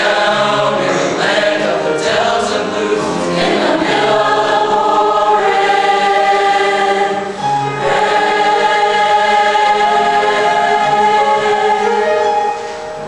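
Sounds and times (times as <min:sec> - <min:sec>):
choir singing held chords: 0:00.0 - 0:13.0.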